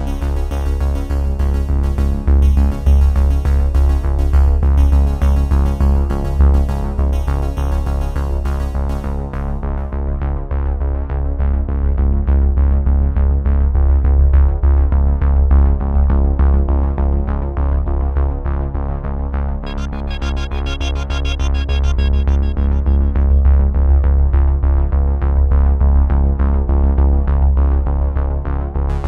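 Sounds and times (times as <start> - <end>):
electronic music with heavy bass: 0.0 - 9.7, 19.6 - 24.9.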